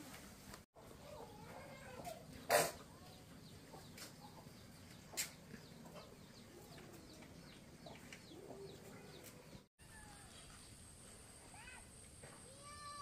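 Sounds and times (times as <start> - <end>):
chickens clucking: 0.8 - 9.4.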